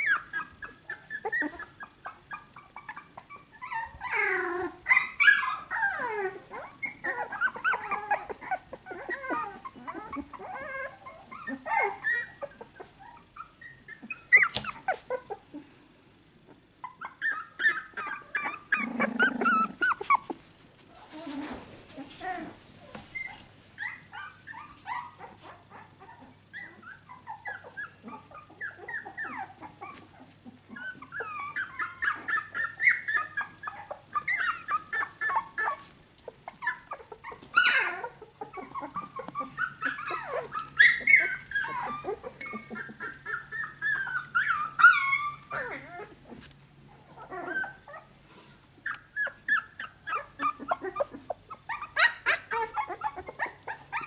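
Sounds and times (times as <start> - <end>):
puppies whimpering and yipping: 0.0 - 15.7, 16.4 - 54.0.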